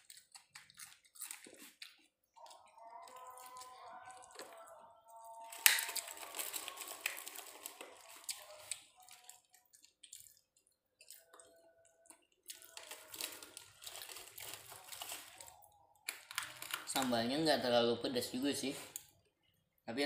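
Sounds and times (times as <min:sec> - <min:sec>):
person chewing crispy chicken: 0:00.0 - 0:17.0.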